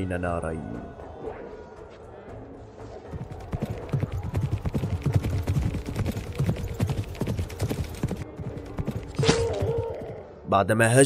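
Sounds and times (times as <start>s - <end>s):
faint background music: 0.0s - 11.0s
horses galloping: 3.1s - 10.2s.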